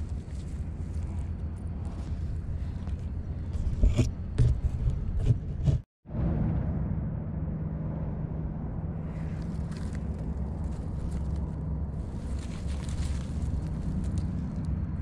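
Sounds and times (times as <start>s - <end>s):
dry leaves and twigs crackling: 0.0s - 3.6s, 9.0s - 15.0s
steady low hum: 0.0s - 15.0s.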